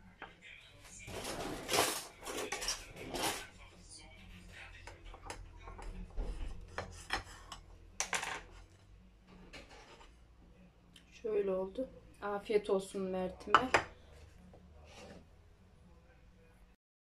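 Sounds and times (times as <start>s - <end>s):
knife scraping through bread: 1.1s - 3.6s, 8.5s - 10.2s, 14.8s - 15.3s.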